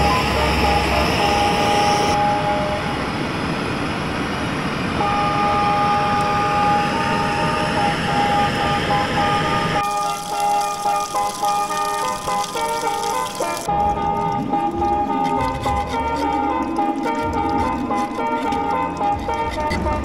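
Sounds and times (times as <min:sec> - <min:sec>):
blowtorch roaring: 0:00.0 - 0:09.8.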